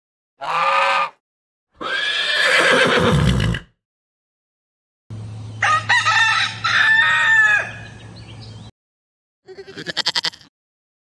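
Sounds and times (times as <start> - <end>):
horse whinnying: 0.4 - 1.2, 1.8 - 3.7
rooster crowing: 5.6 - 8.0.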